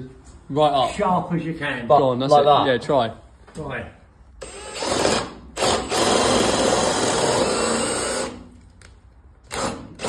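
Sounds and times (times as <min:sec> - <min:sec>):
cordless drill boring into wood: 0:04.4 - 0:08.5, 0:09.5 - 0:10.0.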